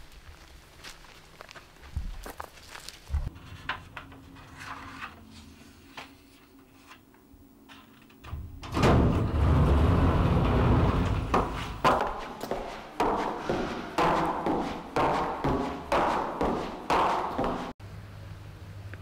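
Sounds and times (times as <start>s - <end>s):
light footsteps: 0.0s - 3.3s, 11.1s - 17.8s
lift doors sliding open: 8.2s - 11.8s.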